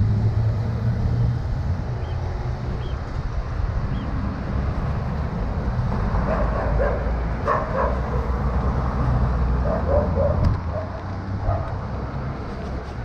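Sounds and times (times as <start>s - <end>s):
wind rumble on microphone: 0.0s - 13.0s
dog barking: 6.2s - 8.3s, 9.6s - 11.8s.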